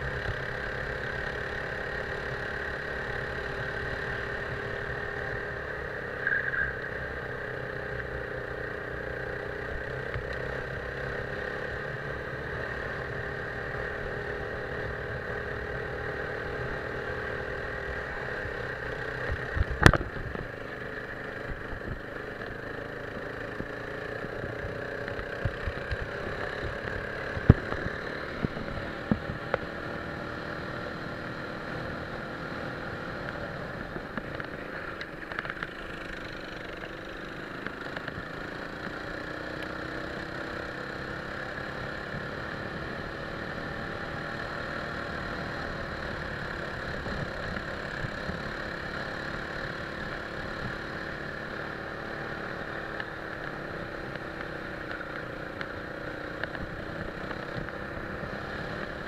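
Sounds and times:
go-kart engine running: 0:00.0 - 0:59.0.

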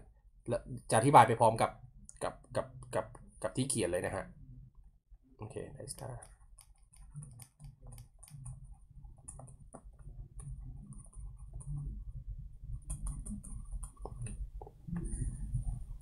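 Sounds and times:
low steady hum: 0:00.0 - 0:16.0
stylus tapping and scratching: 0:02.0 - 0:03.6, 0:05.9 - 0:16.0.

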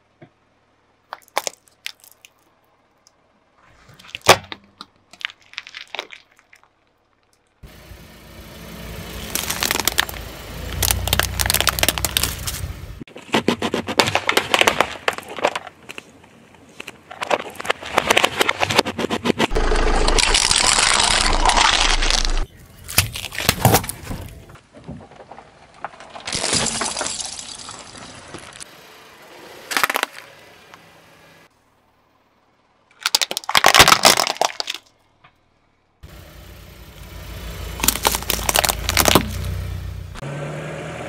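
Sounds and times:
plastic cracking and crunching: 0:04.0 - 0:07.6, 0:09.3 - 0:12.6, 0:13.8 - 0:16.1, 0:17.1 - 0:19.5, 0:20.1 - 0:24.3, 0:29.7 - 0:30.3, 0:32.9 - 0:35.0, 0:37.8 - 0:39.5.

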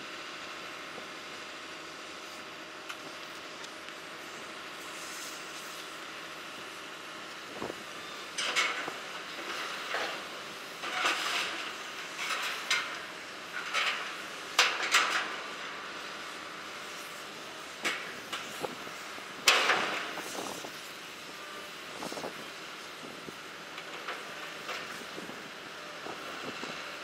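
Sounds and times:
steel clanking and banging: 0:08.4 - 0:15.4, 0:19.4 - 0:20.3.

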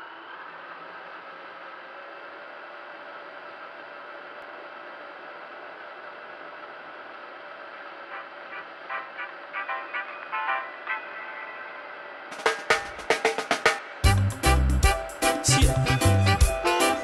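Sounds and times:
music with sharp drum hits: 0:12.3 - 0:17.0.

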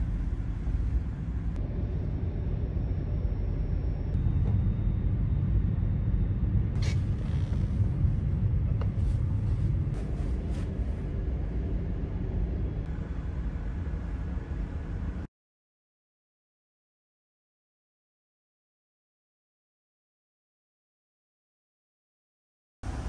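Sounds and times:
low rumble of ship: 0:00.0 - 0:15.3.

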